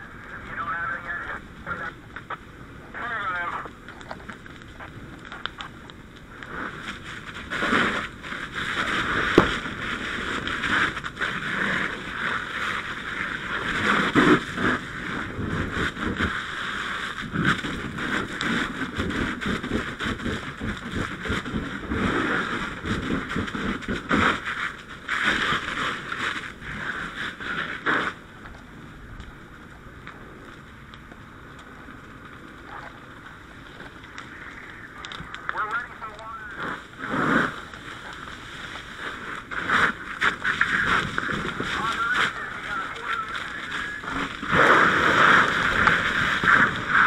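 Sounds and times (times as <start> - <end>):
fire hose water rushing: 33.4 - 47.0.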